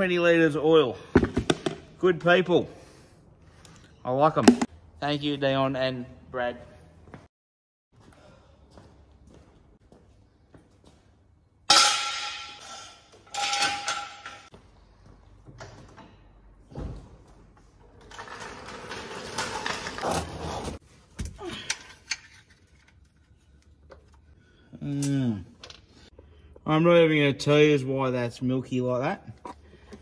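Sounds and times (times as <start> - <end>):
gear scraping on concrete floor: 18.0 - 20.8
rolling scrape on concrete: 18.0 - 20.8.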